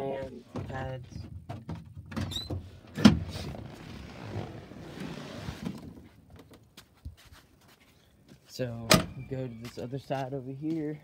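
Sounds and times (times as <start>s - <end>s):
rustling and bumping: 0.5s - 7.9s.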